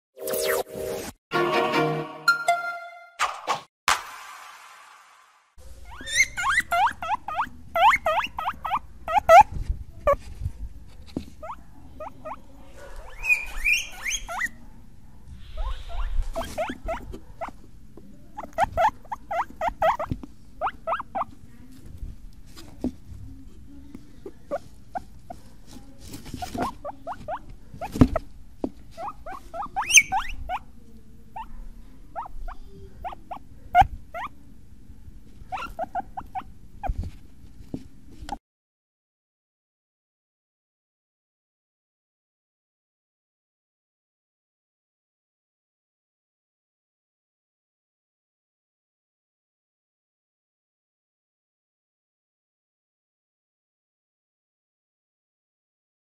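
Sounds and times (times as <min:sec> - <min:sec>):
guinea pigs squeaking: 0:05.7 - 0:10.2, 0:11.4 - 0:14.6, 0:15.4 - 0:17.7, 0:18.3 - 0:21.4, 0:24.1 - 0:34.4, 0:35.5 - 0:37.0.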